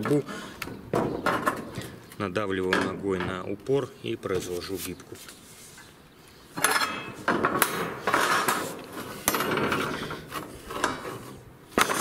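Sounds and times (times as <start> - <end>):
metal rebar scraping and clanking: 6.5 - 12.0.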